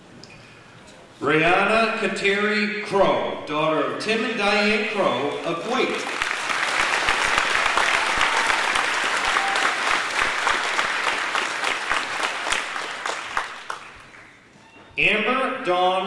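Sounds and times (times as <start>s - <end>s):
audience applause: 5.1s - 14.5s.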